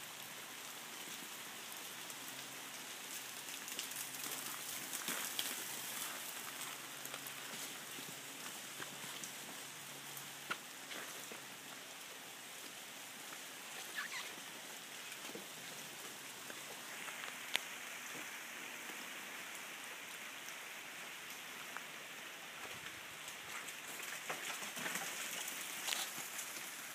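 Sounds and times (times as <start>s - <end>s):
freezing rain pattering on ice: 0.0s - 26.9s.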